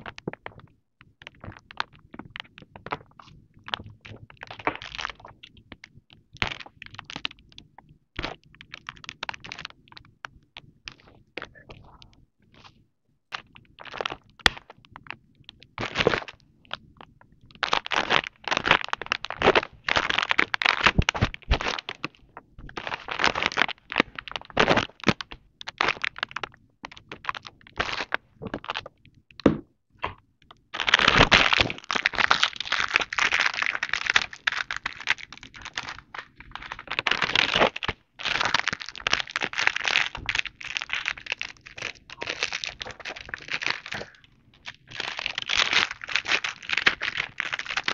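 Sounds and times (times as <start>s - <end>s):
plastic packaging crinkling: 15.7s - 16.4s, 17.5s - 28.9s, 30.8s - 47.9s.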